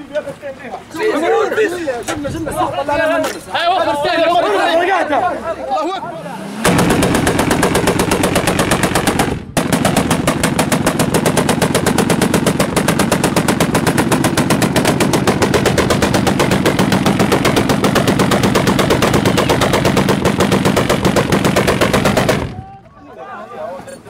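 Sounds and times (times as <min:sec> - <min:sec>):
heavy machine gun automatic fire: 0:06.6 - 0:22.6.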